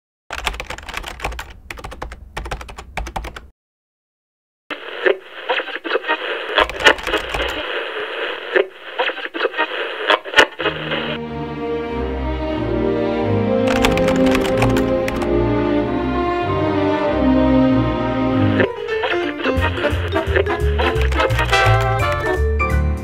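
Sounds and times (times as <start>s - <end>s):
fast typing keystroke clicks: 0.3s - 3.5s, 6.6s - 7.6s, 13.7s - 15.3s, 19.8s - 22.4s
music: 10.7s - 23.0s.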